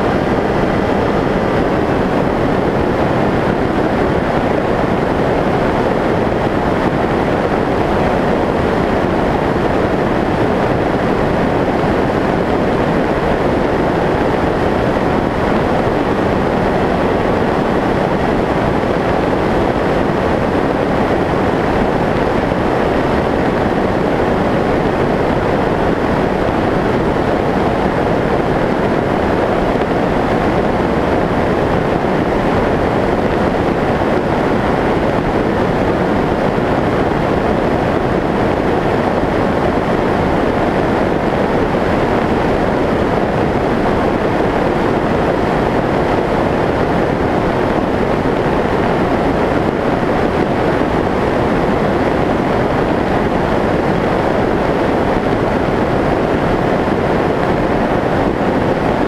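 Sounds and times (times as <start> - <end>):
rushing airflow: 0.0 - 59.0.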